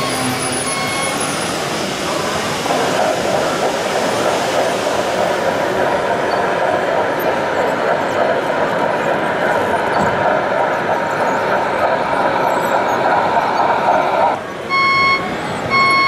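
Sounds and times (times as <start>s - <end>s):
pulsing warning beep: 0.0s - 2.5s, 12.2s - 16.0s
tracked dumper running: 0.0s - 16.0s.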